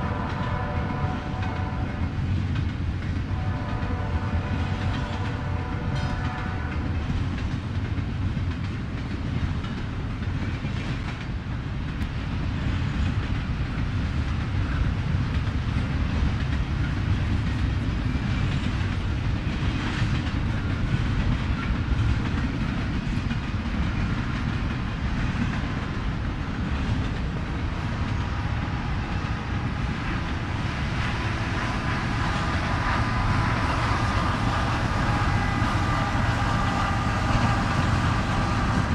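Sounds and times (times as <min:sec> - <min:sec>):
train horn chord: 0:00.0 - 0:02.1, 0:03.3 - 0:06.9, 0:31.0 - 0:38.9
freight train wheels rumbling: 0:00.0 - 0:38.9.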